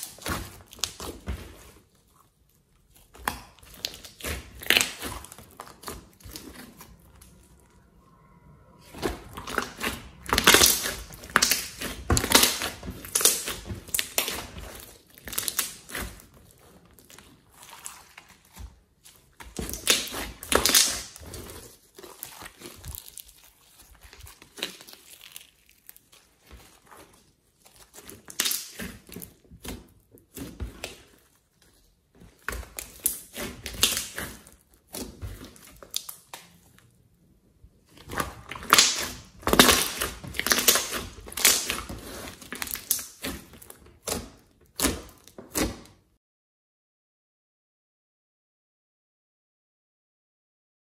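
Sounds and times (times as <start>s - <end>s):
slime crackling and popping: 0.0s - 7.6s, 8.8s - 31.6s, 32.3s - 37.0s, 37.8s - 46.0s.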